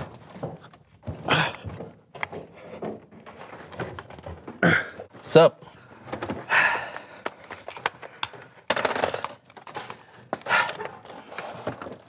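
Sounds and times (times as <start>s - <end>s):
computer equipment clattering on a desk: 0.0s - 4.6s.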